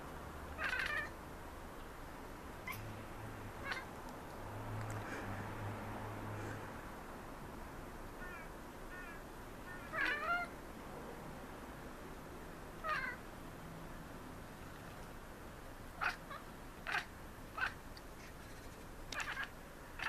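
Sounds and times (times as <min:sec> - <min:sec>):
cat chattering: 0:00.6 - 0:01.2, 0:02.6 - 0:02.9, 0:03.6 - 0:03.9, 0:09.7 - 0:10.5, 0:12.8 - 0:13.2, 0:16.0 - 0:20.0.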